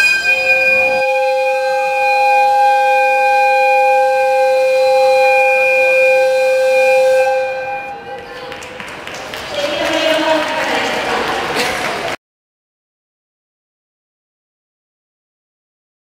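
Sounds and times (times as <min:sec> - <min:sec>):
locomotive whistle blast: 0:00.0 - 0:08.4.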